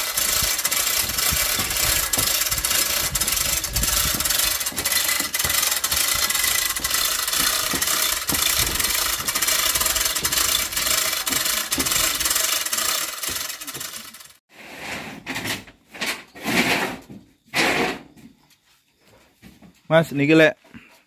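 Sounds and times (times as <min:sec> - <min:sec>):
chain hoist clicking and rattling: 0:00.0 - 0:14.4.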